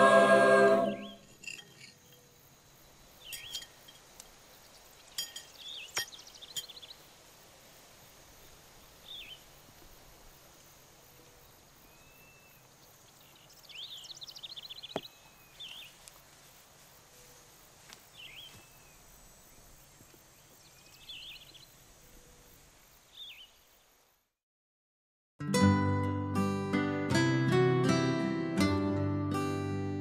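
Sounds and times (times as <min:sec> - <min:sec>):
birds chirping: 0:00.0 - 0:02.4, 0:03.0 - 0:07.0, 0:11.3 - 0:16.0, 0:18.1 - 0:21.8
faint hiss: 0:02.3 - 0:24.4.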